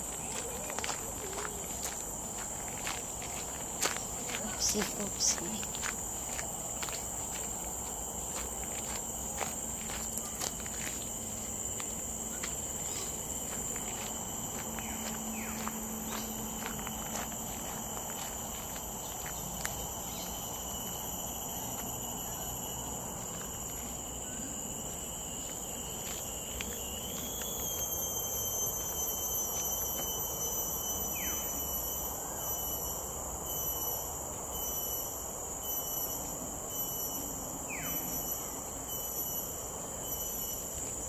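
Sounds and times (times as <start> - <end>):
insects buzzing: 0.0 - 41.0.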